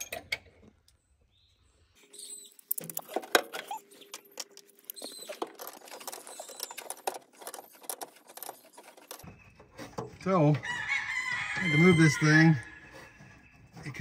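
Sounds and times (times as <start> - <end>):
wires and metal parts rattling: 2.5 - 10.6.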